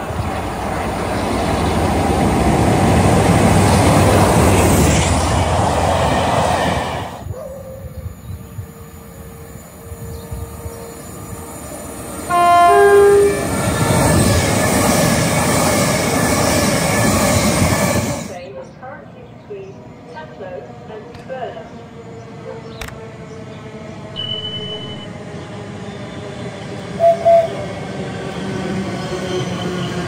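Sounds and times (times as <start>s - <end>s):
train rail rumble: 0.0s - 30.0s
two-tone train horn: 12.3s - 13.6s, 24.1s - 25.2s, 27.0s - 27.6s.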